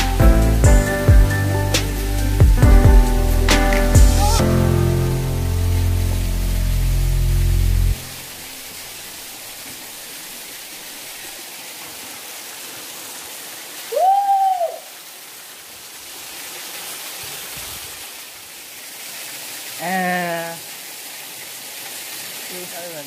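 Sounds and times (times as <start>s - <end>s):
waterfall splashing onto rocks: 0.0s - 23.0s
rising and falling whoop: 13.9s - 15.0s.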